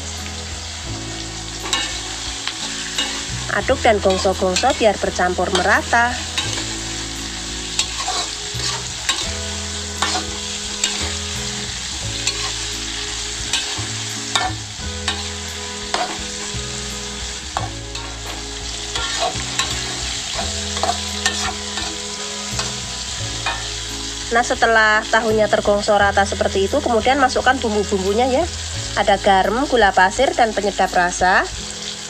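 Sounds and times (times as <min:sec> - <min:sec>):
food sizzling in oil: 0:00.0 - 0:32.0
metal spatula scraping wok: 0:01.4 - 0:24.3.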